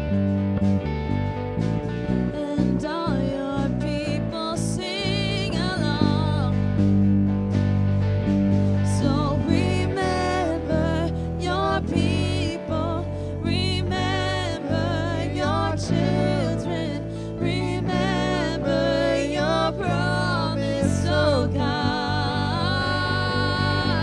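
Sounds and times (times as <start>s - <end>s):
drums: 0.0s - 2.8s, 6.0s - 10.1s
electric guitar: 0.0s - 24.0s
keyboard: 0.0s - 24.0s
steady bass line: 0.0s - 24.0s
woman singing into a microphone: 2.2s - 6.8s, 8.8s - 24.0s.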